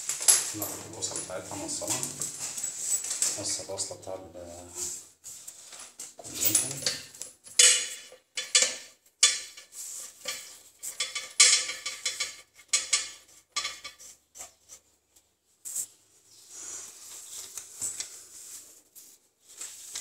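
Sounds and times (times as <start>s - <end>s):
metal parts scraping and clinking: 0.2s - 3.5s, 6.3s - 14.2s.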